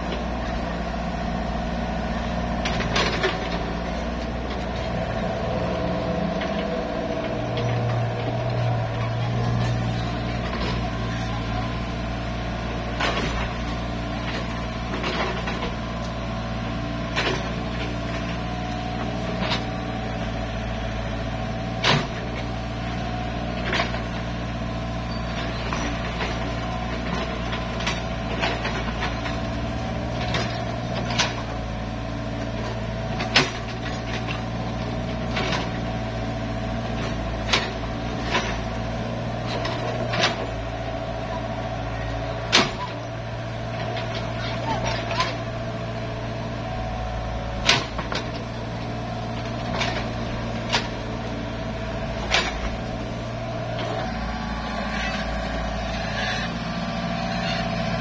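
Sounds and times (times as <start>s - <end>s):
excavator diesel engine running: 0.0s - 58.0s
excavator bucket clanking: 32.5s - 58.0s.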